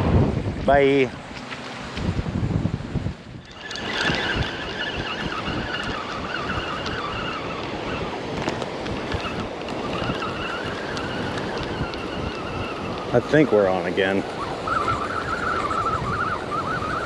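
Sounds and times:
wind noise: 0.0s - 17.0s
fishing reel being cranked: 3.4s - 13.4s.

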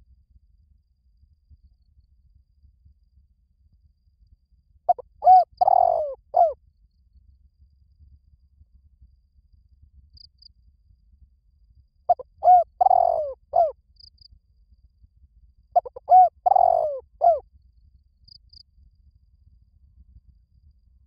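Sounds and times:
dove cooing: 4.9s - 6.6s, 12.1s - 13.7s, 15.8s - 17.4s.

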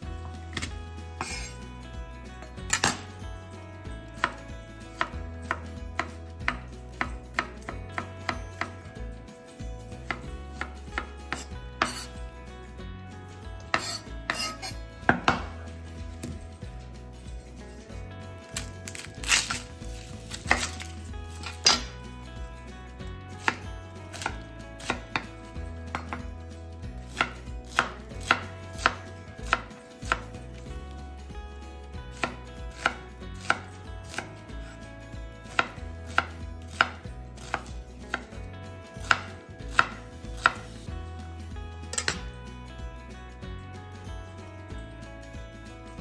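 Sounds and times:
knife chopping on cutting board: 0.5s - 1.6s, 4.2s - 8.8s, 10.0s - 12.2s, 13.7s - 16.4s, 18.4s - 22.0s, 23.4s - 26.3s, 27.0s - 30.7s, 32.1s - 34.8s, 35.5s - 38.4s, 39.0s - 40.8s.

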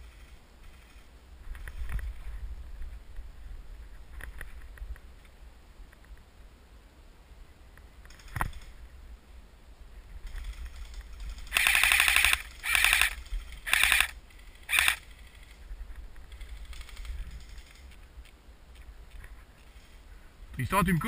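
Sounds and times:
airsoft rifle rapid firing: 10.8s - 15.1s.

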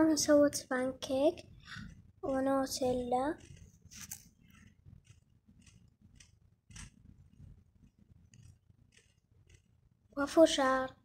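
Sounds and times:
faint handling rustles and clicks: 3.1s - 9.7s.

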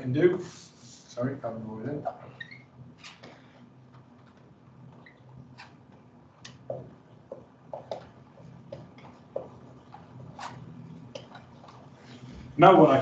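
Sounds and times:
low room hum: 0.0s - 13.0s
marker squeaking on whiteboard: 2.1s - 12.0s.

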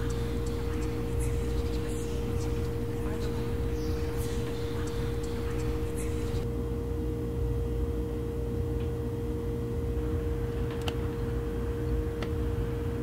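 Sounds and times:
single-pitch drone tone: 0.0s - 6.4s.

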